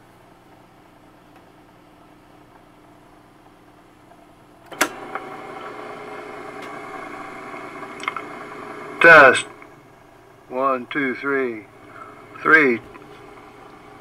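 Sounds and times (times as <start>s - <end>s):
cassette recorder humming: 4.6s - 14.0s.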